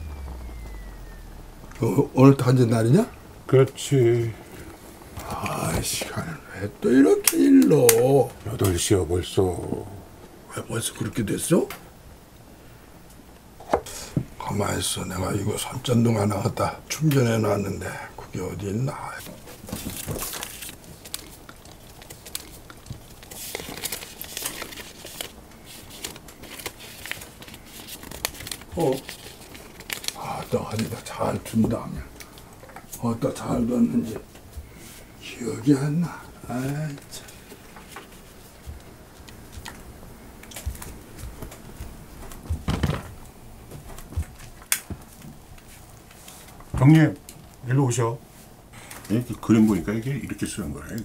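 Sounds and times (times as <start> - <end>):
crinkling and rustling: 18.8 - 35.1, 36.5 - 47.6.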